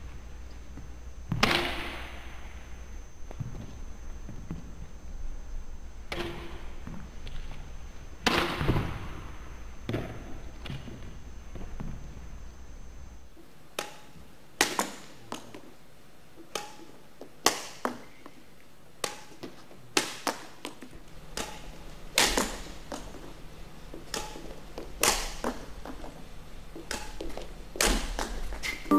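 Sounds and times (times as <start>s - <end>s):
rackets hitting shuttlecocks: 13.8s - 15.7s, 16.4s - 18.2s, 19.0s - 23.2s, 23.9s - 26.0s, 26.8s - 28.7s.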